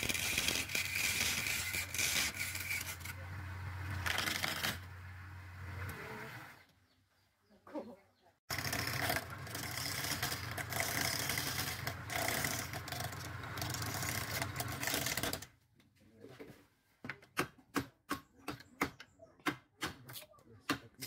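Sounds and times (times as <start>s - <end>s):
chisel scraping wood on lathe: 0.0s - 4.8s, 8.5s - 15.4s.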